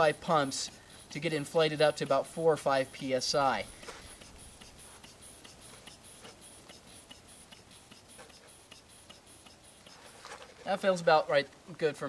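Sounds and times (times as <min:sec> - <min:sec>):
hand bulb pump clicking: 0:02.9 - 0:10.0.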